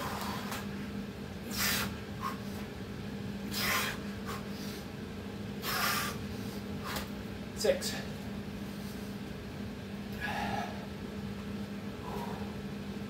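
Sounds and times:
steady low hum: 0.0s - 13.0s
man exhaling hard: 10.2s - 10.8s.

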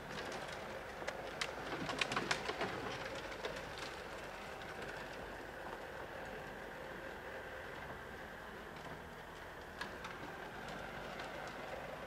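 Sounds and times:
faint background noise: 0.0s - 12.0s.

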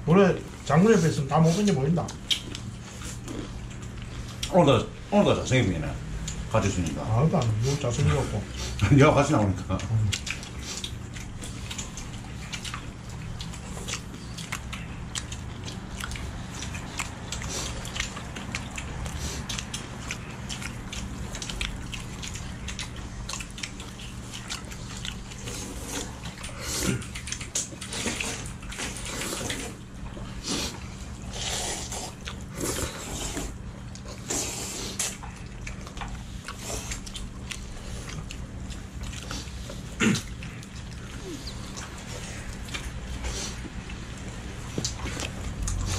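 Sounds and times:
chewing: 0.4s - 4.7s, 6.2s - 45.9s
people slurping noodles: 30.4s - 33.6s.

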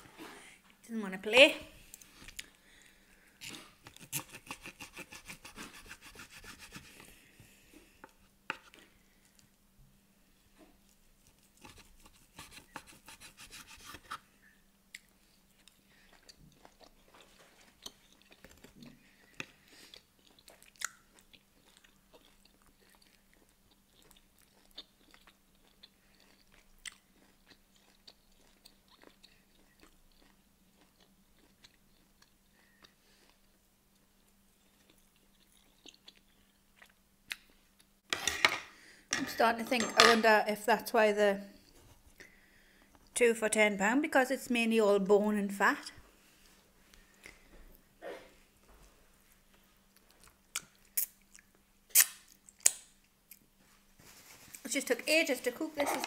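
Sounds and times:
person chewing steak: 3.4s - 7.0s, 14.9s - 37.9s
knife sawing through meat: 4.1s - 6.9s, 11.6s - 14.0s.

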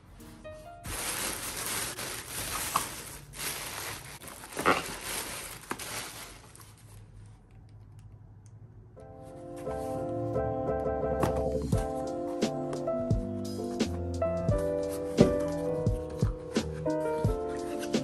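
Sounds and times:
soft music: 0.0s - 2.0s, 9.0s - 18.0s
tissue paper rustling: 0.0s - 7.4s.

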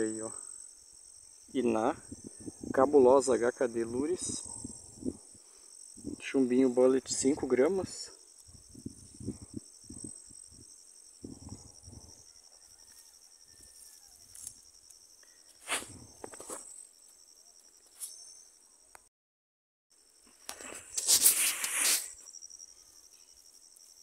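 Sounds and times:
insects chirring: 0.0s - 19.1s, 19.9s - 24.0s
handling rustles and bumps: 15.6s - 16.8s.

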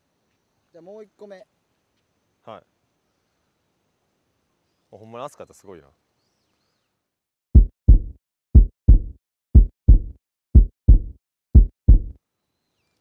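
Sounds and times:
heartbeat: 7.6s - 12.2s.

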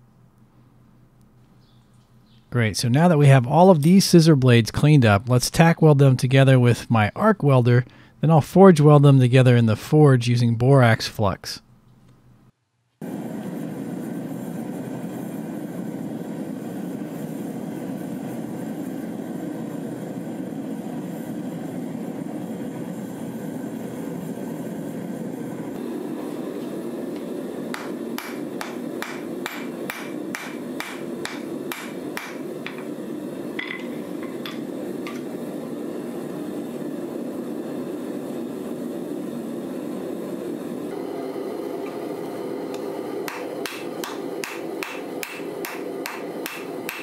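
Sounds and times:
forge roaring: 13.0s - 47.0s
hammer striking metal on anvil: 27.7s - 32.8s, 43.3s - 47.0s.

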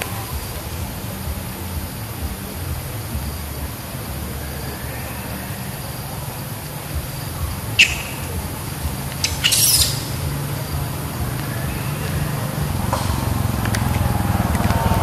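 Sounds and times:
low background rumble: 0.0s - 15.0s
monkeys squealing and screaming: 3.8s - 14.9s.

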